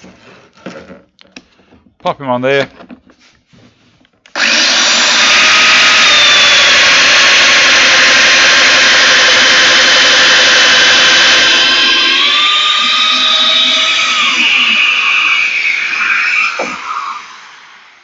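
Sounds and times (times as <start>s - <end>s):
power joiner cutting wood: 4.3s - 17.8s.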